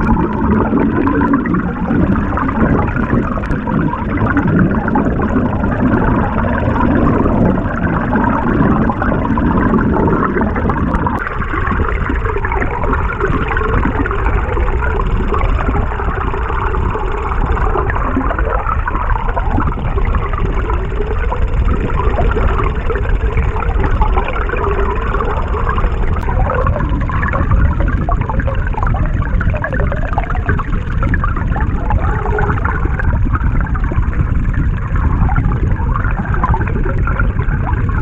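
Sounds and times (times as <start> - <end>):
dense underwater noise: 0.0 - 38.0.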